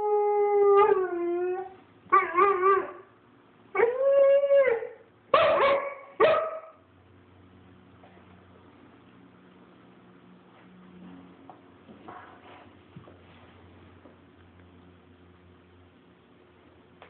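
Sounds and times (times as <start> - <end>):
puppy howling: 0.0 - 3.0, 3.8 - 5.0.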